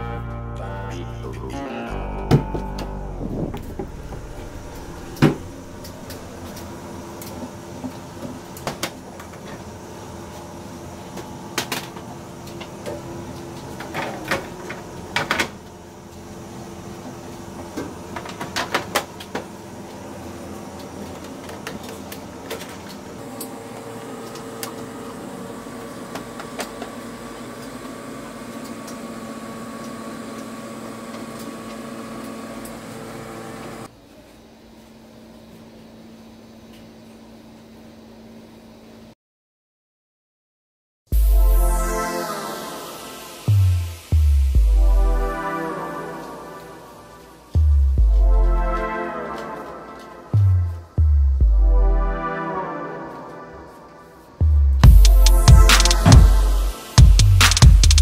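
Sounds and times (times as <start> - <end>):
low steady hum: 0.0 - 9.3, 41.2 - 56.8
steady machine hum: 0.0 - 34.2, 41.1 - 58.0.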